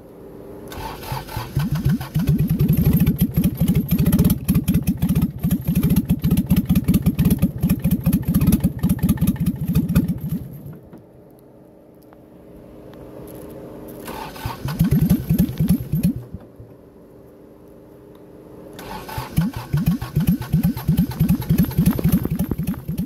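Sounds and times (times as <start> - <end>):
diesel engine cranking: 0.7 - 10.9, 13.9 - 16.8, 18.8 - 23.0.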